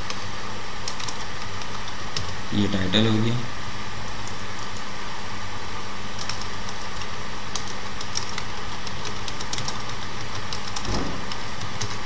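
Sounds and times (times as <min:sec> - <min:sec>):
background hum: 0:00.0 - 0:12.0
keyboard keys clicking: 0:00.9 - 0:02.3, 0:06.2 - 0:12.0.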